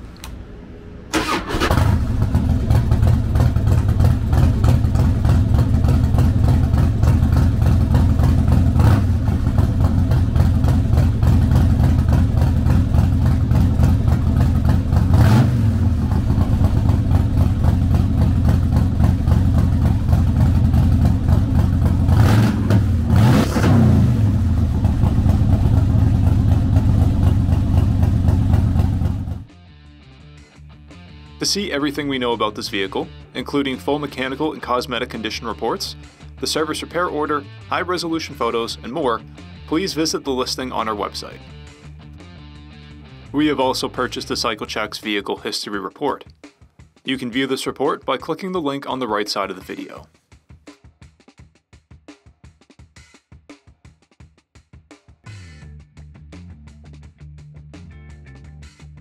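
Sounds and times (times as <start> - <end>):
electric starter cranking: 1.1 - 2.2
motorcycle engine idling: 1.2 - 23.1, 24.0 - 29.5.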